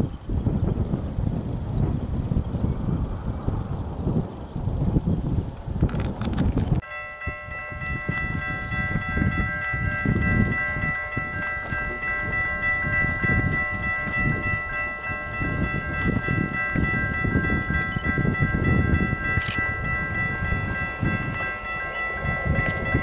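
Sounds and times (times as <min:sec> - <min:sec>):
diesel railcar rumble: 0:00.0 - 0:23.0
wind: 0:00.0 - 0:23.0
level crossing bells ringing: 0:06.8 - 0:23.0.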